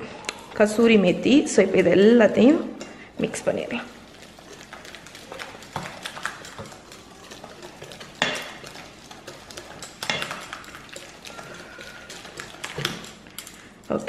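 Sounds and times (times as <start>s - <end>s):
utensil scraping metal bowl: 3.2s - 14.0s.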